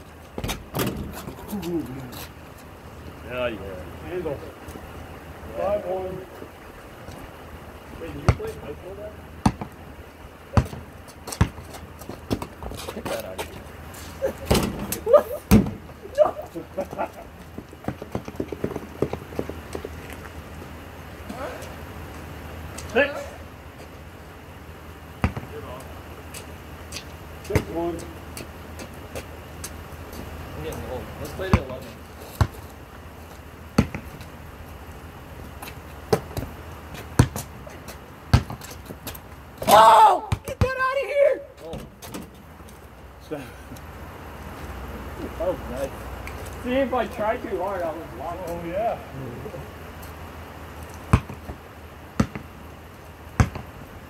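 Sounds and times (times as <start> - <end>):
basketball bouncing on hard court: 9.4 - 9.8, 10.5 - 12.8, 25.2 - 25.5, 31.5 - 31.7, 33.8 - 34.2, 37.2 - 37.5, 38.3 - 38.8, 51.1 - 51.6, 52.2 - 52.5, 53.4 - 53.7.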